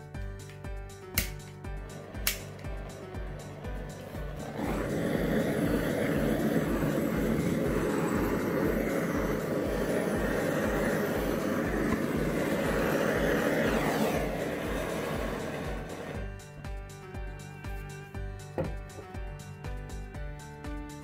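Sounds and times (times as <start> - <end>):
gas torch burning: 1.1 - 16.4.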